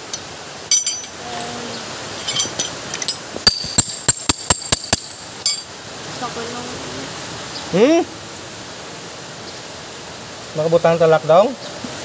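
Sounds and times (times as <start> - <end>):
wrench tapping on metal: 0.0 - 1.5, 2.2 - 5.7.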